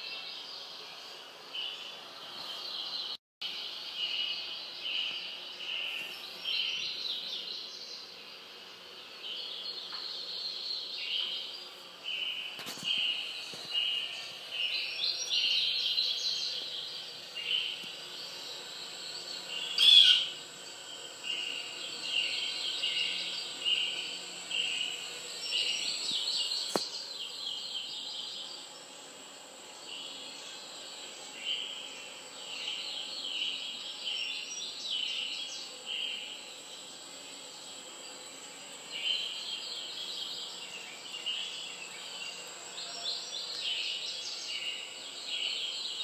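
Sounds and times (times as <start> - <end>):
bird chirps and trills on television: 1.5 - 8.4, 9.0 - 28.8.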